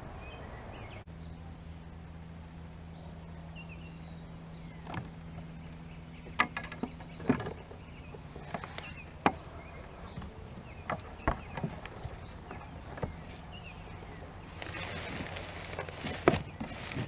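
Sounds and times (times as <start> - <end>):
rustling: 10.2 - 17.0.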